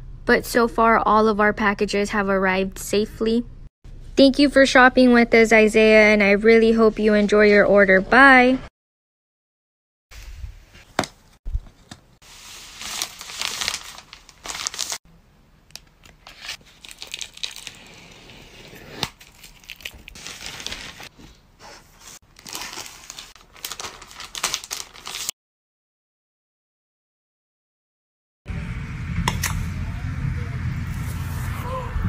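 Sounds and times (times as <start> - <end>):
plastic bags crinkling: 12.3 - 15.0, 16.2 - 18.2, 19.2 - 21.1, 22.2 - 25.3.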